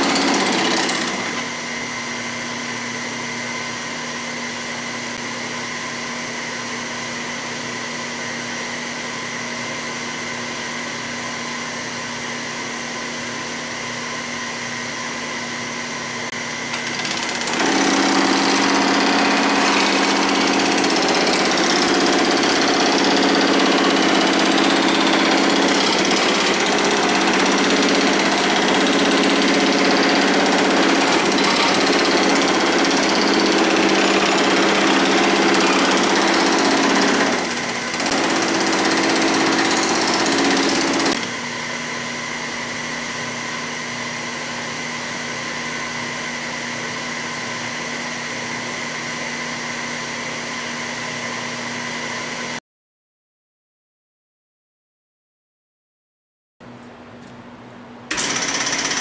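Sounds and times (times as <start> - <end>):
hammer dies working sheet metal: 0.0 - 1.5, 16.7 - 41.3, 58.1 - 59.0
power hammer running: 0.0 - 1.9, 16.6 - 42.4, 58.1 - 59.0.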